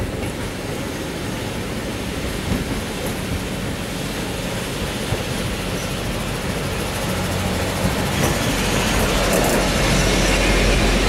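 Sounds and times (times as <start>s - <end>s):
railcar engine hum: 0.0s - 11.0s
wheels rolling on rails: 2.4s - 11.0s.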